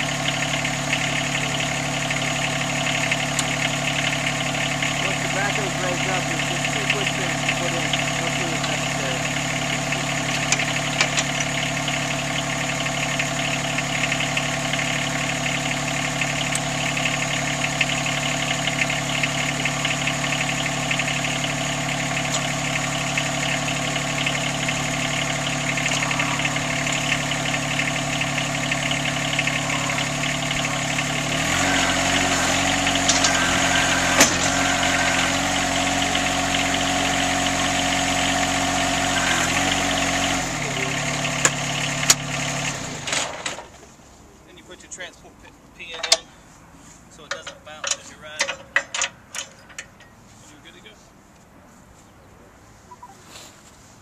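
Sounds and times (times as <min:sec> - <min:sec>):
diesel tractor engine idling: 0:00.0 - 0:51.3.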